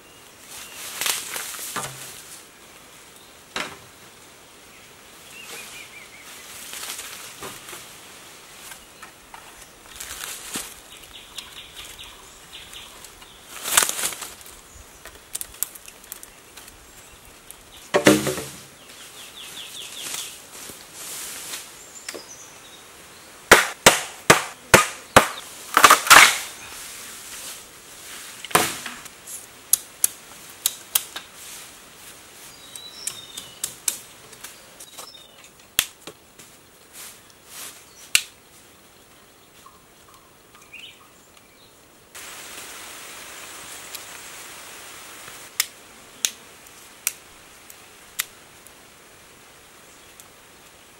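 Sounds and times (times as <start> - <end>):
machete chopping bamboo: 18.0 - 18.6, 23.5 - 26.5.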